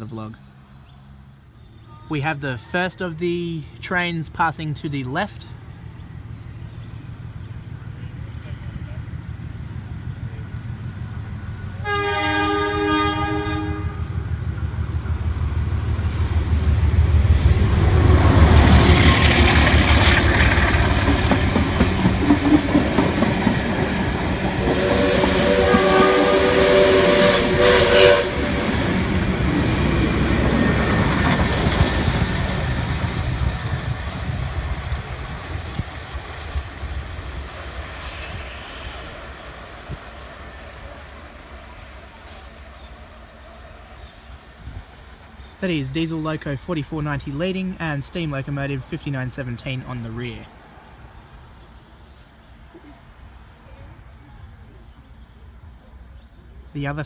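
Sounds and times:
diesel locomotive rumble: 3.1s - 51.4s
train horn: 11.8s - 14.2s, 24.6s - 28.9s
wheels clattering over rail joints: 18.4s - 24.8s.

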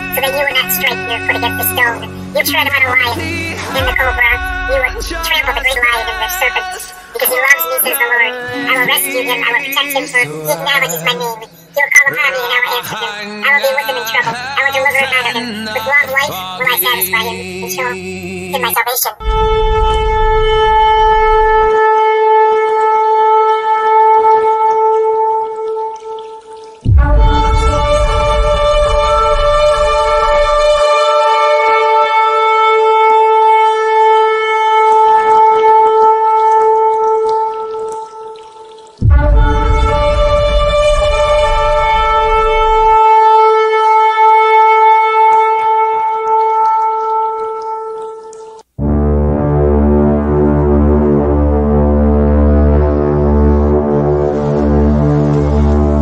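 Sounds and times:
low rumble: 19.2s - 21.8s, 26.9s - 30.8s, 39.0s - 43.0s
ram's horn long blast: 19.2s - 37.6s
shofar long held note: 19.2s - 48.2s.

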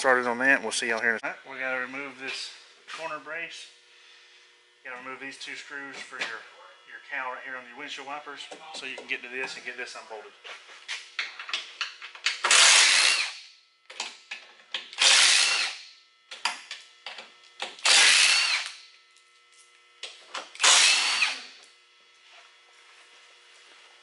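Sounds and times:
cordless power drill bursts: 12.4s - 13.4s, 14.9s - 15.9s, 17.8s - 18.8s, 20.6s - 21.6s.

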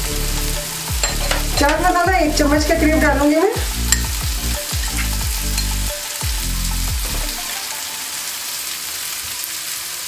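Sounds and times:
food sizzling in hot oil: 0.0s - 10.0s.

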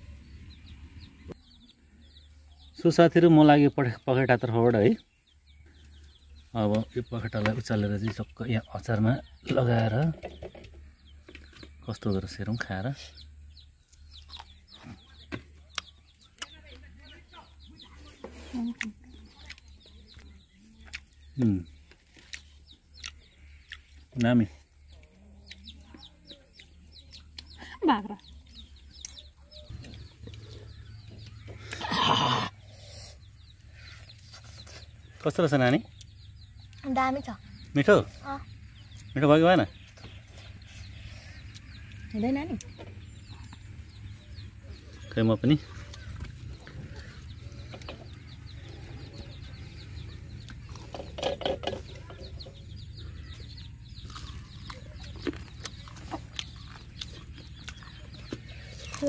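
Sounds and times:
chickens calling: 0.0s - 59.0s.

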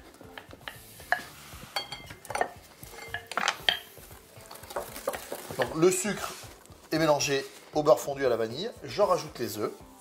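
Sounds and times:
whisk clinking against glass bowl: 0.7s - 3.9s.

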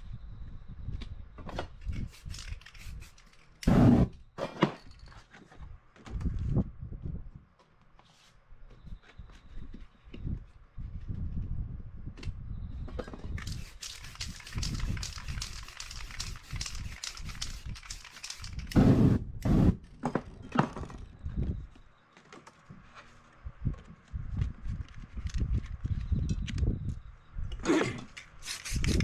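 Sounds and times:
spray paint can hissing: 2.0s - 4.1s, 13.4s - 19.7s, 28.4s - 29.0s.

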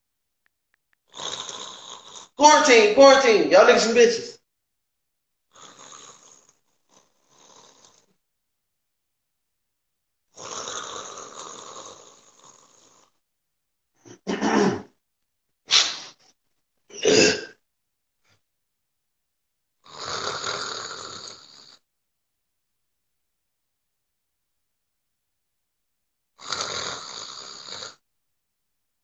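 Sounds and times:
man snoring: 1.1s - 3.7s, 5.5s - 8.1s, 10.4s - 13.2s, 19.8s - 21.8s, 26.4s - 28.0s.

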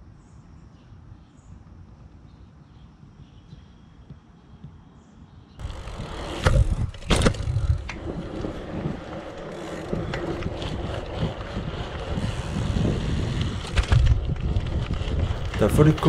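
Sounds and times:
bike clicking and rattling: 5.6s - 16.0s
bike tyres rolling on asphalt: 5.6s - 16.0s
wind on microphone: 5.6s - 16.0s.

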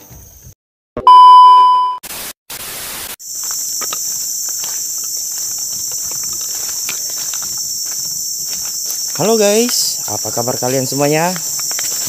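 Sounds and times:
loud steady beep: 1.1s - 2.0s
static hiss bursts: 2.0s - 5.4s
footsteps on leaf litter: 3.2s - 12.0s
insects buzzing: 3.2s - 12.0s.

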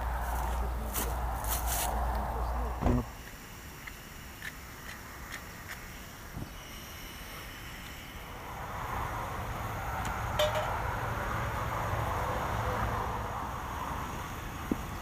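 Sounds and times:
metal pot clinking: 10.4s - 10.8s.

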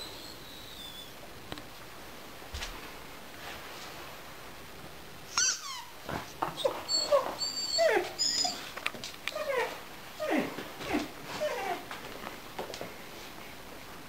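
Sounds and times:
puppy whimpering and yelping: 0.0s - 1.2s, 5.3s - 6.0s, 6.6s - 11.9s
squeaky toy squeaking: 5.3s - 6.0s.

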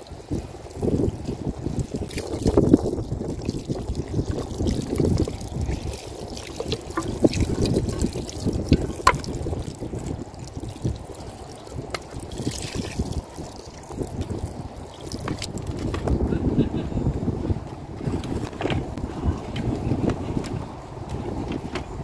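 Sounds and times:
water pouring and splashing: 0.0s - 16.2s
wind rumbling on microphone: 0.0s - 22.0s.

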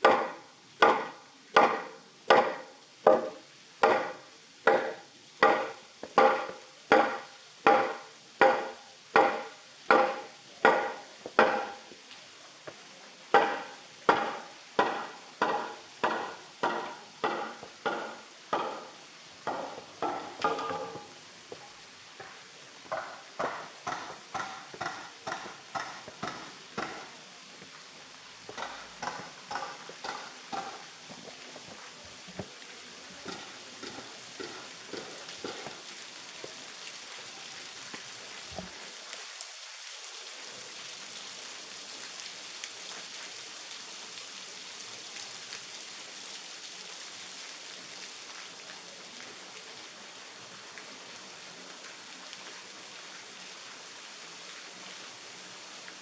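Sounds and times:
steady hiss: 0.0s - 56.0s
footsteps on stone steps: 19.5s - 27.2s, 28.5s - 32.6s.

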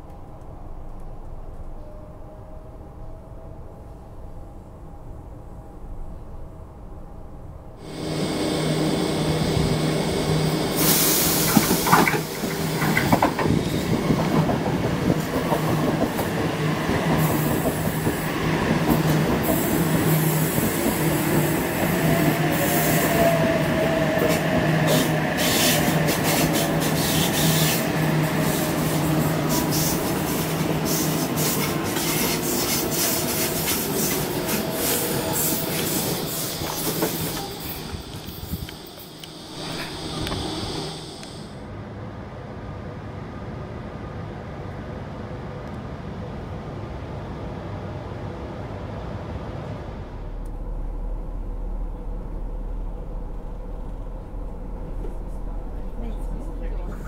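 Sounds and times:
low electric train hum: 0.0s - 57.0s
train motor whine: 7.8s - 16.3s, 16.9s - 41.6s.

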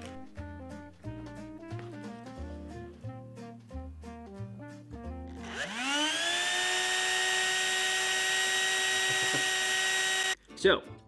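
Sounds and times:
electric fan motor whine: 5.4s - 10.4s.

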